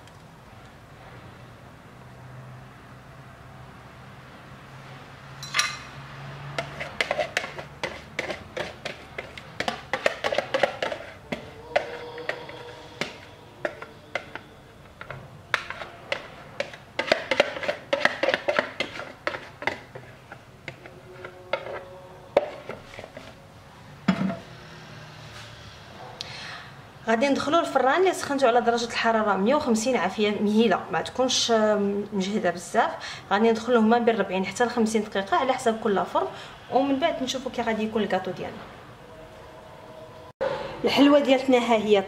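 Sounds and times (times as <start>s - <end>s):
ceramic bowl scraped and knocked: 6.5s - 23.4s.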